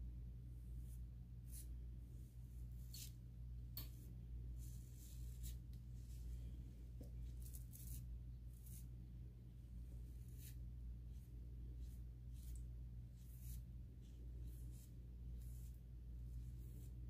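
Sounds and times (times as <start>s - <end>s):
toothbrush bristles brushing hair: 11.8s - 13.7s.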